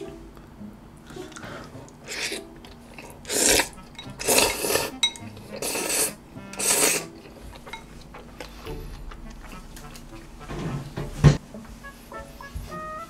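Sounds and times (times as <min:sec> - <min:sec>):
noodles slurped: 0:01.1 - 0:10.2.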